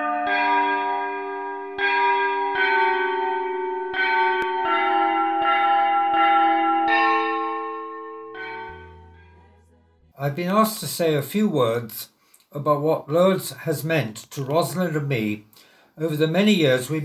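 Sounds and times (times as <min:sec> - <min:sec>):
church bells ringing: 0:00.0 - 0:10.8.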